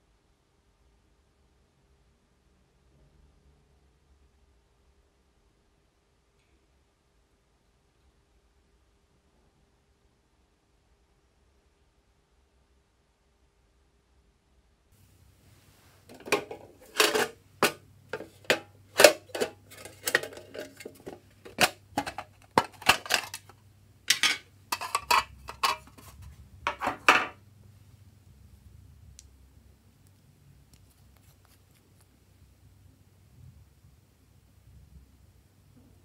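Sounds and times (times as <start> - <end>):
faint handling noise: 15.0 - 27.8, 30.0 - 32.4
plastic cases clicking: 16.1 - 26.1.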